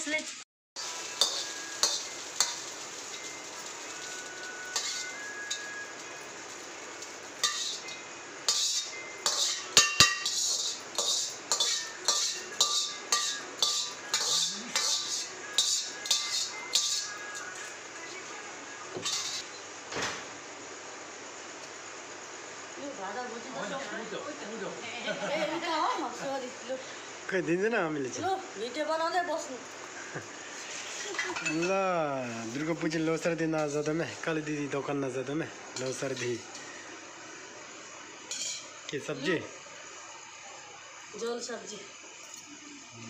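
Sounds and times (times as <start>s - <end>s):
frying hiss: 0.0s - 43.0s
metal ladle clanking on wok: 7.4s - 17.1s, 38.3s - 38.7s.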